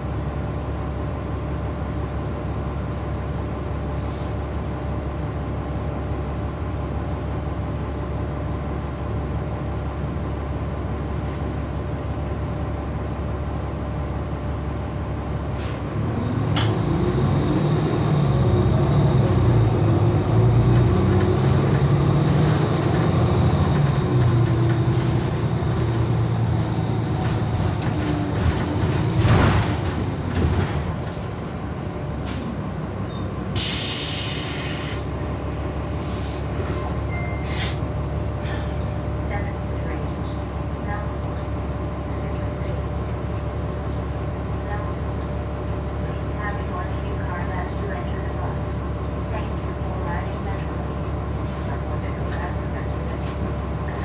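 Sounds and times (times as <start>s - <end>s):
bus diesel engine: 0.0s - 54.0s
air hiss: 33.6s - 35.1s.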